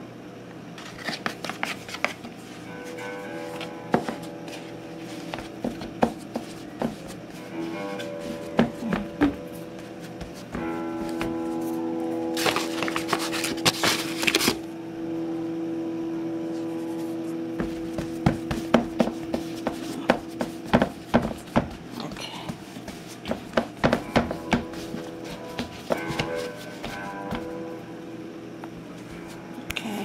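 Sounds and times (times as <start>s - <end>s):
steady background tone: 0.0s - 30.0s
hands rubbing dough on metal tray: 0.9s - 11.6s, 12.4s - 14.4s, 17.6s - 27.4s.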